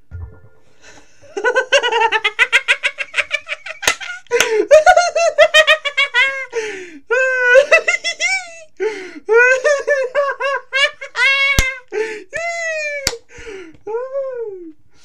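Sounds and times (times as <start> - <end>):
person laughing hard: 1.2 - 8.6.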